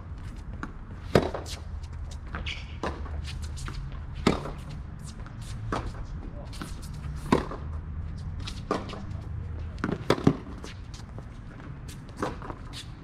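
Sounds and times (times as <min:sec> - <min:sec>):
tennis ball struck by rackets: 0:00.6 - 0:01.6, 0:02.4 - 0:06.0, 0:06.6 - 0:07.7, 0:08.4 - 0:09.2, 0:09.8 - 0:10.7
ball bouncing on hard court: 0:04.2 - 0:06.0, 0:08.4 - 0:10.6.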